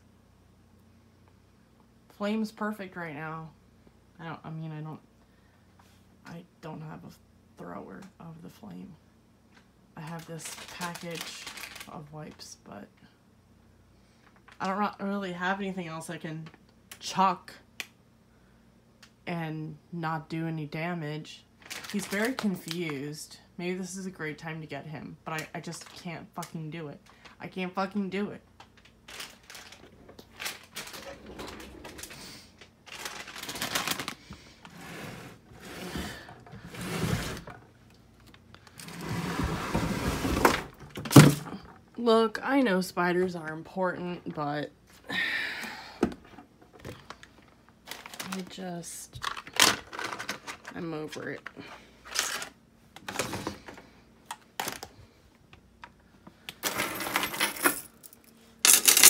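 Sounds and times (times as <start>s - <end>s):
handling rustling and rattling: 28.6s - 34.8s, 49.2s - 50.8s, 56.6s - 59.0s.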